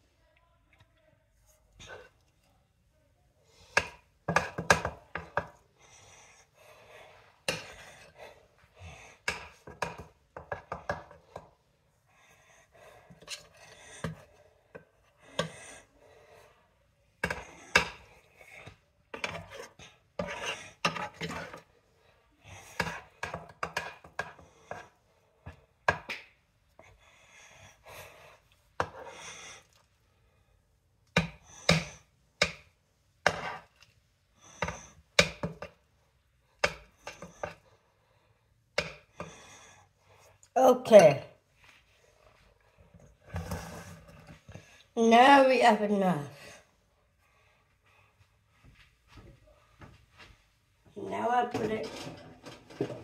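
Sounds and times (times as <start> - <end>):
utensil knocking and scraping dishes: 3.7 - 5.6, 7.4 - 8.2, 9.2 - 11.5, 17.2 - 21.7, 22.7 - 26.2, 31.1 - 33.8, 34.5 - 35.8, 36.6 - 37.6, 38.8 - 39.4, 51.2 - 53.0.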